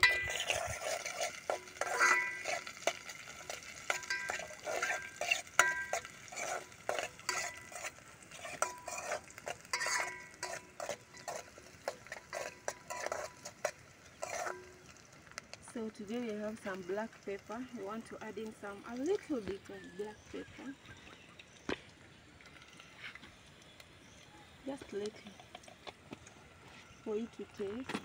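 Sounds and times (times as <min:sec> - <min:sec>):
spoon clinking against pot: 0:00.0 - 0:14.8
metal spoon stirring in a pot: 0:00.0 - 0:21.6, 0:24.8 - 0:27.0.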